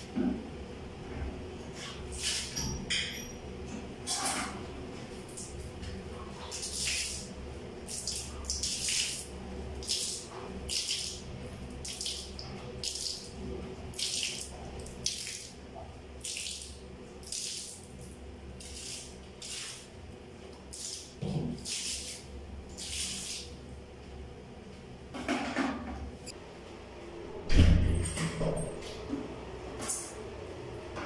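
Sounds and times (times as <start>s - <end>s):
water splashing on floor: 6.5s - 15.6s, 16.2s - 19.9s, 20.7s - 23.6s.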